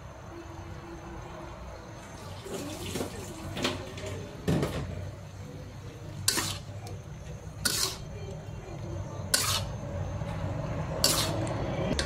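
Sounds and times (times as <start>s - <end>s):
vegetables sizzling in a wok: 1.6s - 12.0s
metal spatula scraping wok: 6.0s - 8.3s, 9.2s - 12.0s.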